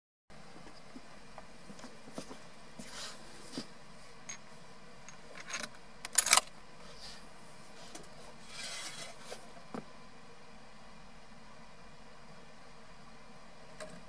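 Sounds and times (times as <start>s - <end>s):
small handling clicks: 5.1s - 6.5s
rustle: 5.3s - 9.8s.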